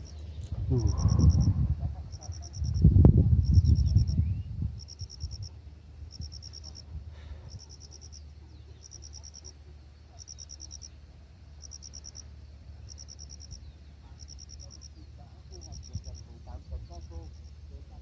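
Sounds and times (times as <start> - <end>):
cricket chirping: 0.0 - 18.0
low steady rumble: 0.0 - 18.0.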